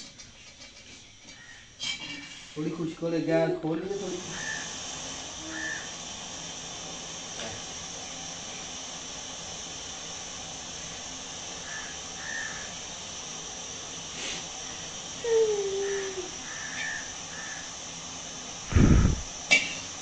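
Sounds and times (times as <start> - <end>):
steady hiss: 0.0 - 20.0
distant bird calls: 11.6 - 12.8, 15.8 - 17.8.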